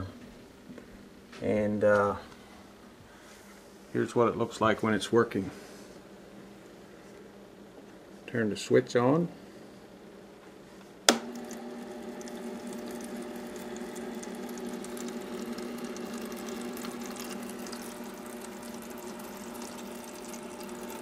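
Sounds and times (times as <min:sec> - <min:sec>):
solenoid valve humming: 0:11.0 - 0:21.0
switch click: 0:11.1 - 0:11.3
water trickling into reservoir: 0:11.3 - 0:21.0.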